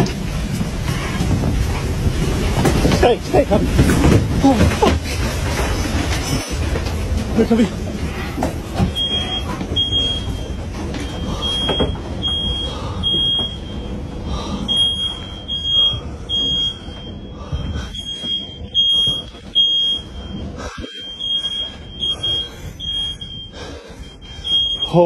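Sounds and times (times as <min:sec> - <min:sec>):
steady low rumble: 0:00.0 - 0:25.0
high-pitched electronic alarm beeping: 0:08.8 - 0:25.0.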